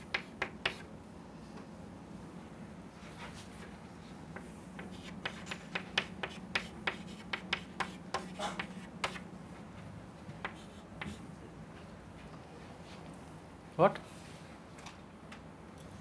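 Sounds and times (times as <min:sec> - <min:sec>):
chalk tapping and scraping: 0:00.0 - 0:00.9, 0:04.3 - 0:09.3, 0:10.4 - 0:11.2.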